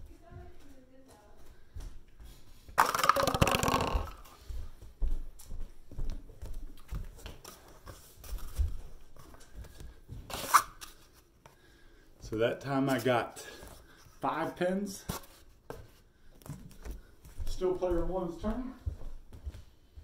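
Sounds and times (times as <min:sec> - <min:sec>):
cardboard tubes clattering on floor: 0:02.8 - 0:04.3.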